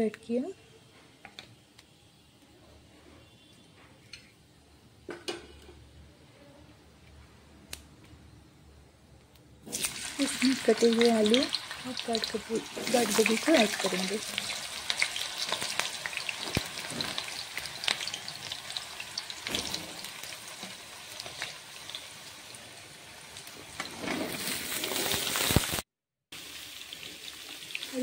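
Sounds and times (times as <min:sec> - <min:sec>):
vegetables sizzling in hot oil: 0:09.6 - 0:25.8, 0:26.4 - 0:28.0.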